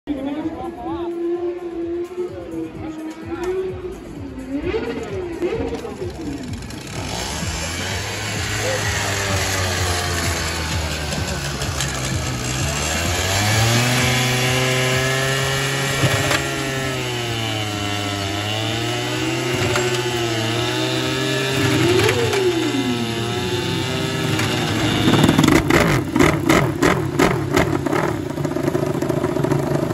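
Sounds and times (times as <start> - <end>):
scooter engine running hard: 4.5 - 29.9
motorcycle engine firing: 8.6 - 17.0, 24.2 - 29.9.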